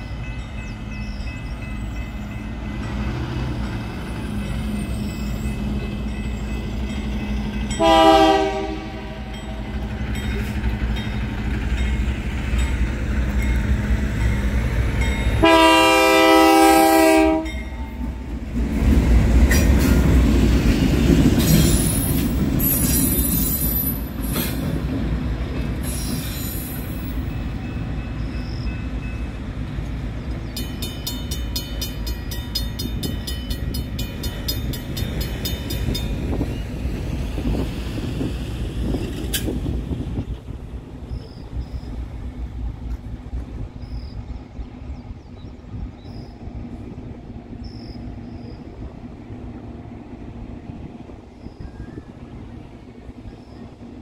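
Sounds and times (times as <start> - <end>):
locomotive engine and rail rumble: 0.0 - 54.0
train horn blasts: 7.7 - 9.7, 15.4 - 18.0.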